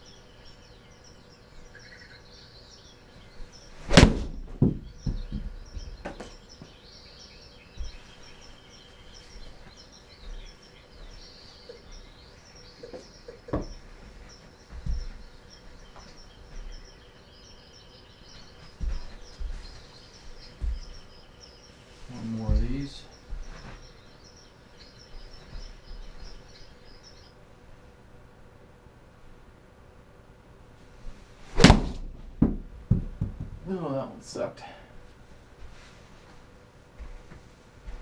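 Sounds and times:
ball smacking impact screen: 3.9s - 4.8s, 31.6s - 33.6s
light knocks and low thumps: 4.2s - 6.4s, 14.7s - 15.3s, 22.3s - 23.6s
golf ball bouncing: 31.6s - 33.6s.

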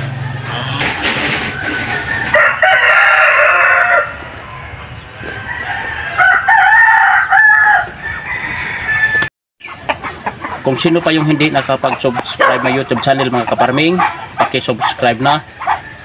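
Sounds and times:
rooster crowing: 0.0s - 9.3s.

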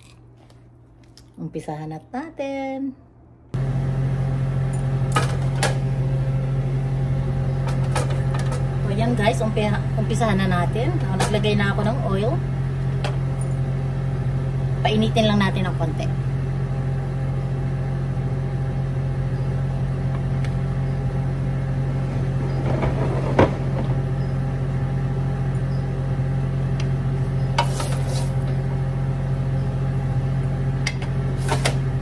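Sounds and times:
motor humming: 3.6s - 32.0s.

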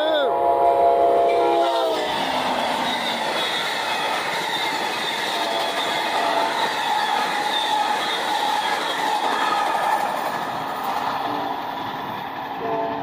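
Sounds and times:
train wheels on rails: 1.2s - 13.0s
high wheel squeal: 1.3s - 9.9s.

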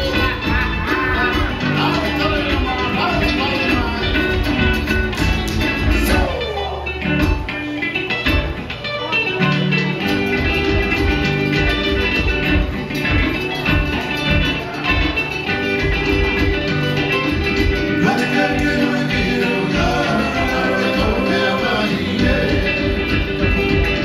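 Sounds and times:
plucked strings: 0.0s - 24.0s
upbeat dance-show music: 0.0s - 24.0s
steady drum beat: 10.1s - 24.0s.

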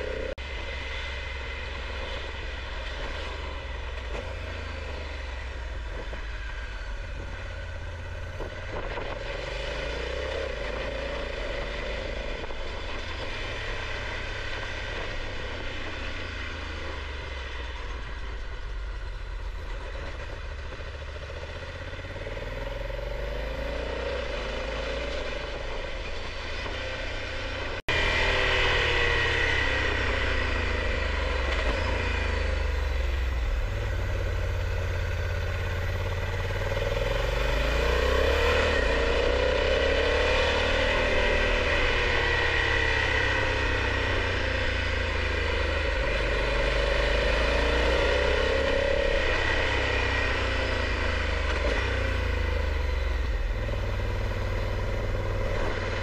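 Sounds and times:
low wind rumble: 0.0s - 56.0s
motorcycle engine revving: 0.0s - 56.0s.

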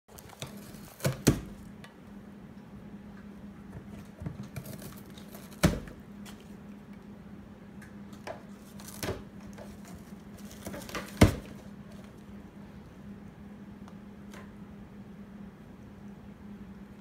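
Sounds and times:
faint low hum: 0.1s - 17.0s
cat tearing cardboard: 0.2s - 1.7s, 3.9s - 6.5s, 8.5s - 12.1s.

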